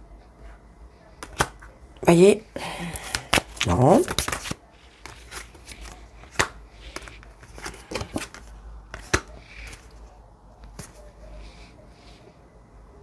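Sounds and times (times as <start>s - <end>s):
card snaps: 1.2s - 1.6s, 2.9s - 7.3s, 7.9s - 9.8s
playing cards shuffling: 2.9s - 12.2s.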